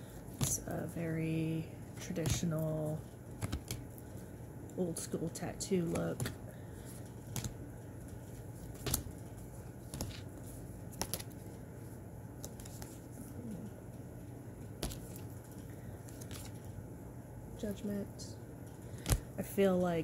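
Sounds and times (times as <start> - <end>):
steady low hum: 0.0 - 20.0
cards snapping and clicking: 3.3 - 4.2, 5.8 - 11.6, 12.4 - 13.0, 14.7 - 16.6, 18.8 - 19.4.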